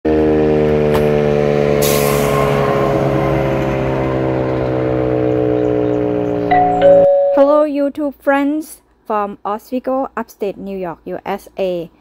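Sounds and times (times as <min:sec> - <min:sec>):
emergency warning siren: 0:00.7 - 0:05.6, 0:06.5 - 0:07.4.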